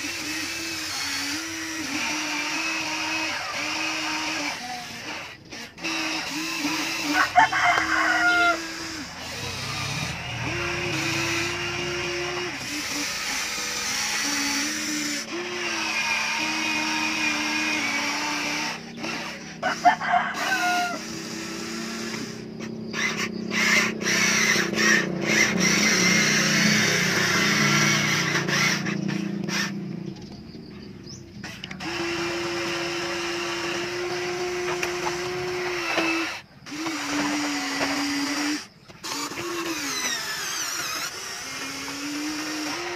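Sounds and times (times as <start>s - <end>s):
toy excavator electric motors whining: 0.0s - 42.9s
rooster crowing: 7.0s - 9.1s, 19.6s - 21.2s.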